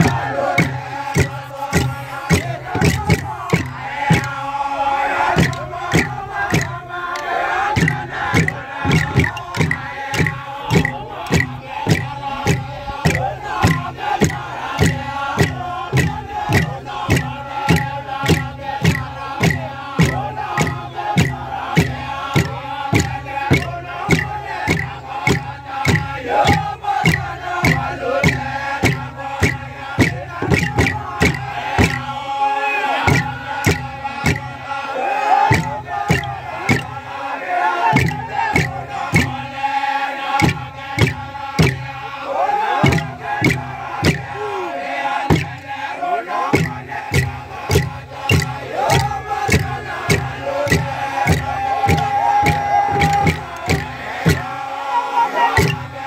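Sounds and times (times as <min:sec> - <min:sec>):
percussion strikes: 0:00.0 - 0:32.4, 0:33.0 - 0:56.0
men chanting: 0:00.0 - 0:56.0.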